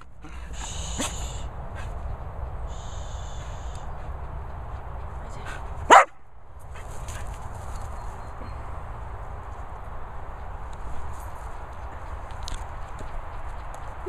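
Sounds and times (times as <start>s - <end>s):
dog barking: 5.9s - 6.2s.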